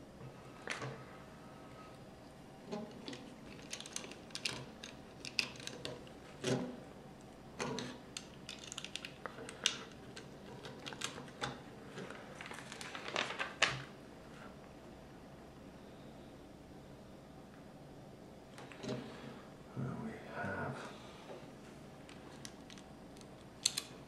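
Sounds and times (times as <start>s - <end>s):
plastic bricks clicking and snapping: 2.9s - 6.6s, 7.6s - 11.6s, 22.4s - 24.0s.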